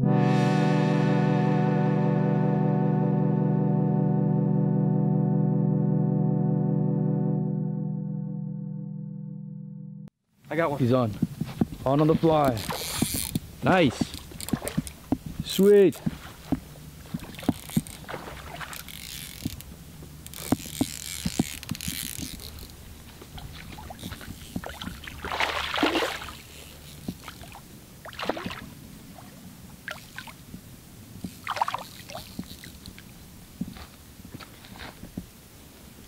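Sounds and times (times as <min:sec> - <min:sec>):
water splashing: 0:12.2 - 0:30.4, 0:31.3 - 0:33.1.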